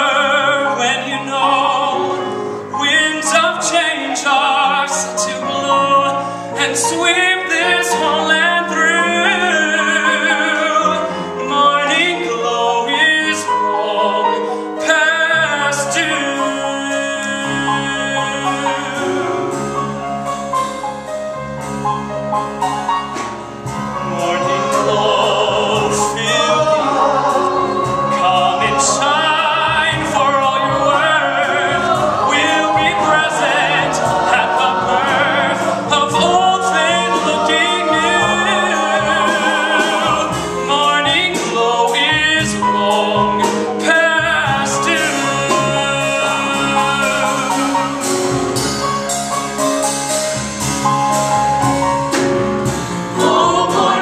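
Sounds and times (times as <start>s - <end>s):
man singing: 0.0s - 19.6s, 24.0s - 48.3s, 53.2s - 54.0s
ensemble voices singing: 0.0s - 20.0s, 23.6s - 48.7s, 52.6s - 54.0s
bass: 0.0s - 54.0s
piano: 0.0s - 54.0s
drums: 14.9s - 54.0s.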